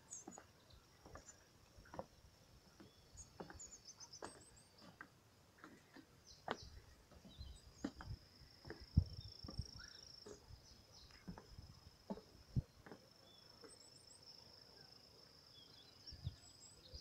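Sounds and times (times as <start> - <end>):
footsteps on wooden planks: 0.1 - 13.8
bird chirps: 2.8 - 5.0, 5.7 - 11.6.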